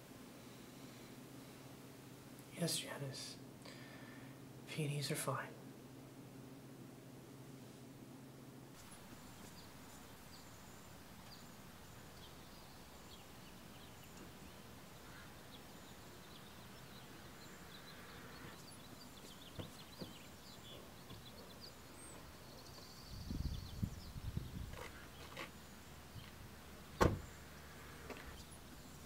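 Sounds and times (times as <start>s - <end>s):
small birds chirping: 8.8s - 29.0s
soft knocks: 19.5s - 20.2s.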